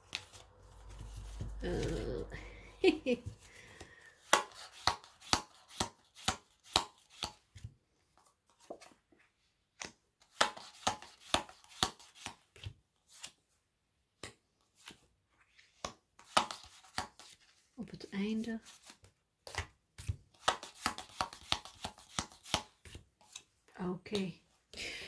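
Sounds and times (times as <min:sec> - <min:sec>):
cardboard cards clicking and snapping: 0:18.8 - 0:23.5.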